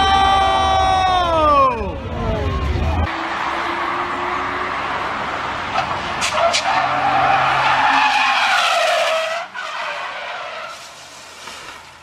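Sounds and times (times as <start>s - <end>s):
sports car engine loud: 2.3s - 9.4s
tyres skidding: 2.4s - 12.0s.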